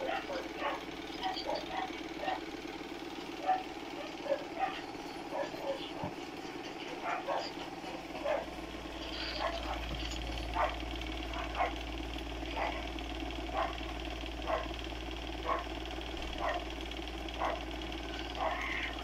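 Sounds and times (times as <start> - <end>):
dog barking: 0.0 - 2.4, 3.4 - 6.1, 6.9 - 7.6, 8.2 - 8.5, 9.4 - 9.9, 10.5 - 11.8, 12.5 - 14.8, 15.4 - 15.8, 16.4 - 16.7, 17.4 - 17.7, 18.3 - 18.9
constant low hum: 0.0 - 19.0.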